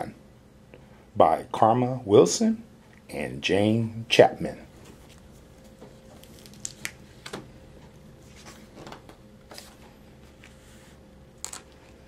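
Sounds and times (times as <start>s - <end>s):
faint steady hum: 0.0s - 12.0s
book pages rustling: 4.8s - 7.4s, 8.2s - 11.0s.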